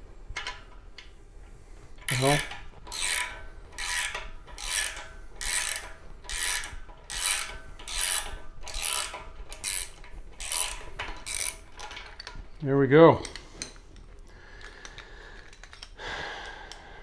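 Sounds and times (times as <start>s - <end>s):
grinding threads: 2.0s - 12.3s
ratchet wrench rasping: 2.1s - 12.3s.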